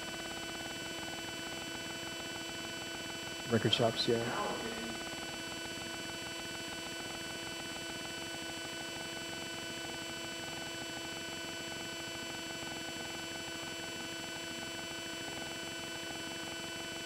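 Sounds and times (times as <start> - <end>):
faint electrical hum: 3.4 - 5.5.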